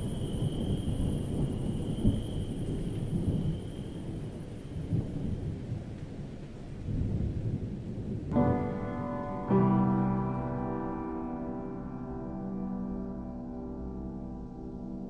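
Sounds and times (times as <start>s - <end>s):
faint high steady tone: 0.0s - 5.1s
thunder rumbling: 0.0s - 15.0s.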